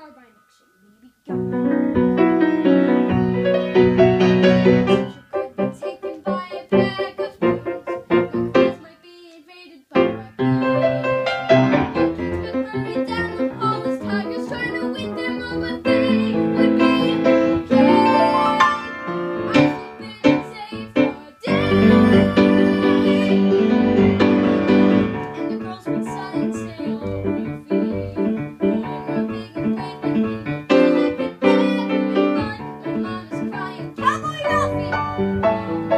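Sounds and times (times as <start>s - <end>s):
piano accompaniment: 0.0s - 8.9s, 10.0s - 35.9s.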